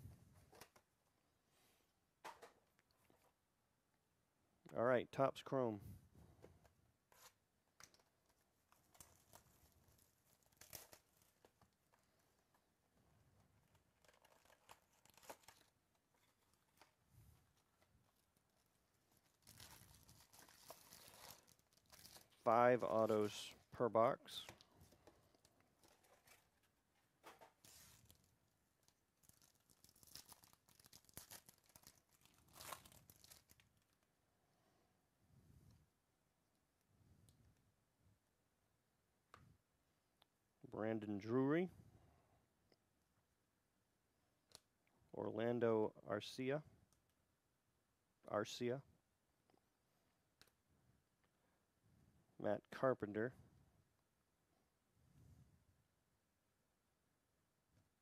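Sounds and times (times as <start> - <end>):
plastic wrap crinkling: 7.9 - 12.6, 13.6 - 17.0, 17.6 - 22.5, 24.4 - 34.1.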